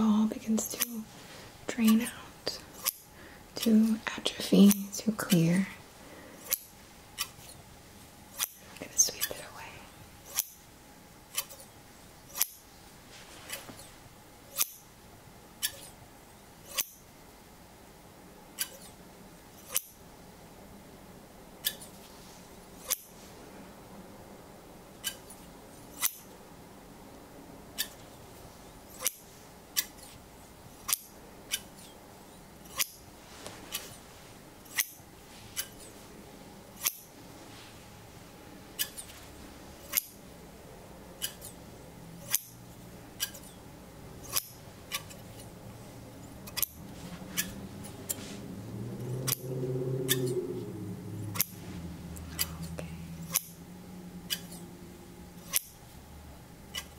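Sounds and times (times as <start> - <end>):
shears snipping: 0.6 - 1.0, 1.8 - 3.0, 32.6 - 34.0, 36.8 - 37.1, 44.2 - 45.5, 46.4 - 50.6, 51.2 - 53.6
low hum: 19.1 - 56.9.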